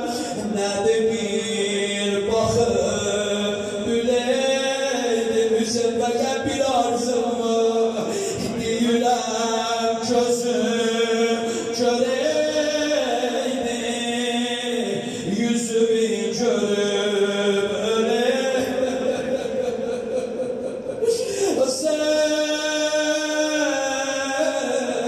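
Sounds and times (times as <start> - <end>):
man chanting into a microphone: 0.0 - 25.0.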